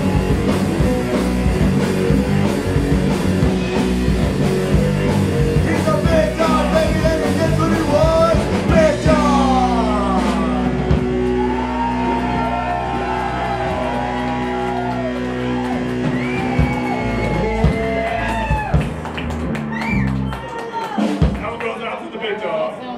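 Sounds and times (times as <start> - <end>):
electric guitars: 0.0 - 21.4
drums: 0.0 - 22.7
shouted singing: 5.6 - 18.7.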